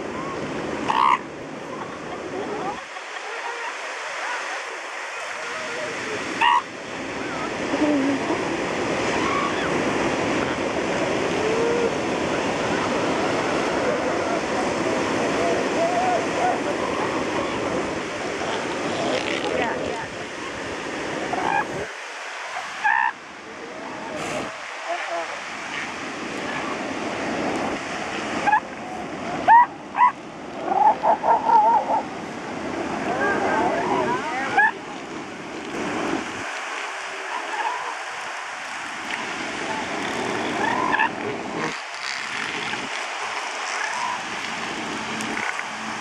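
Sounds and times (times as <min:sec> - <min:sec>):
ocean surf on beach: 0:00.0 - 0:46.0
seals yelping: 0:00.2 - 0:01.2, 0:05.1 - 0:06.7, 0:21.3 - 0:21.9, 0:22.6 - 0:23.2, 0:28.4 - 0:28.7, 0:29.4 - 0:32.1, 0:39.7 - 0:42.2, 0:43.6 - 0:44.3
faint wavering calls: 0:05.1 - 0:06.7, 0:22.6 - 0:23.2.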